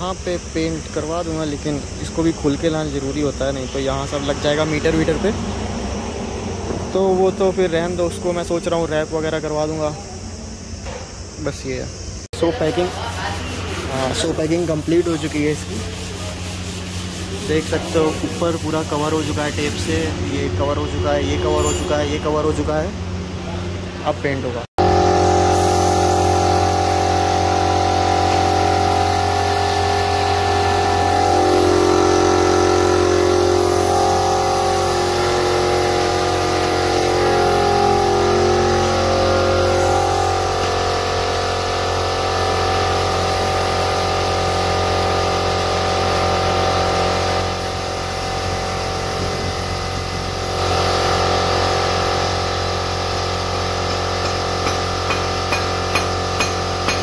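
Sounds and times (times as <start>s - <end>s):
air compressor running: 0.0s - 57.0s
paint spray gun hissing: 8.6s - 20.1s, 24.8s - 57.0s.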